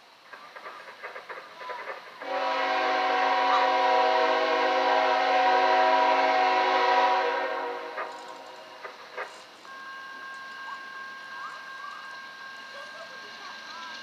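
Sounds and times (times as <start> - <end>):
locomotive air horn blast: 2.2 - 8.5.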